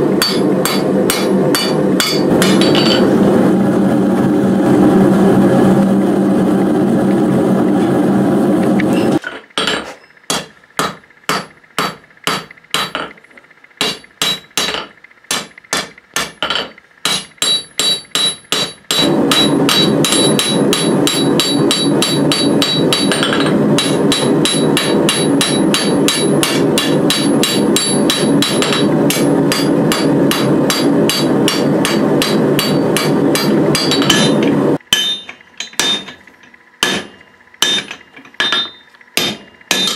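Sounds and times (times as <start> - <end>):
gas forge burner roaring: 0.0 - 39.9
anvil ringing: 0.2 - 3.1, 13.8 - 36.2, 36.8 - 39.9
hammer striking steel on anvil: 0.2 - 3.1, 9.2 - 13.2, 13.8 - 36.2, 36.8 - 39.9.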